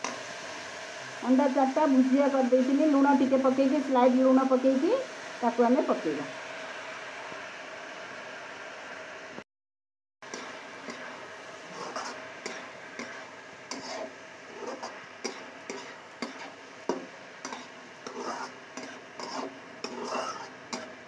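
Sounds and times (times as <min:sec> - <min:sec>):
steady sizzle: 0:00.0 - 0:09.4, 0:10.2 - 0:21.0
spatula scraping a wok: 0:10.2 - 0:21.0.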